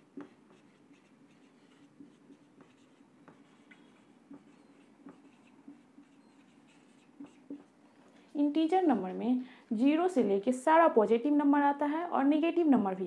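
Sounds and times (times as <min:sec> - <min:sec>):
marker pen writing on whiteboard: 0:00.0 - 0:07.9.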